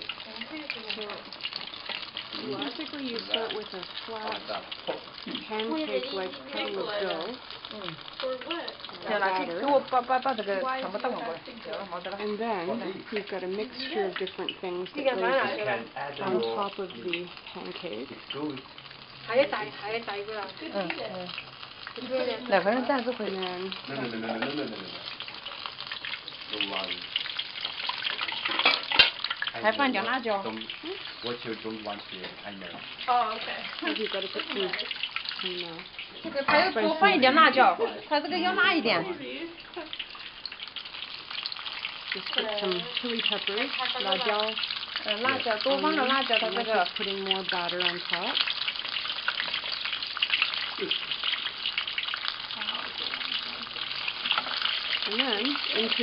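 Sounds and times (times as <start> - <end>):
hot oil sizzling: 0.0 - 56.0
person talking: 36.2 - 39.3.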